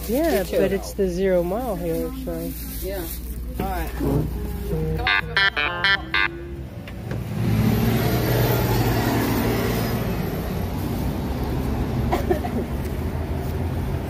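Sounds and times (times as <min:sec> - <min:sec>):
traffic engine noise: 0:00.0 - 0:14.0
short pitched tones: 0:04.3 - 0:06.8.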